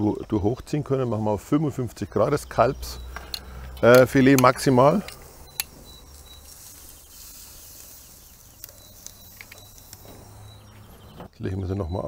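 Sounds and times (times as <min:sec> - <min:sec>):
faint outdoor ambience: 0:00.0 - 0:12.0
soft high chirps: 0:02.0 - 0:12.0
small ticks: 0:03.0 - 0:10.8
metallic tongs click: 0:03.2 - 0:05.7.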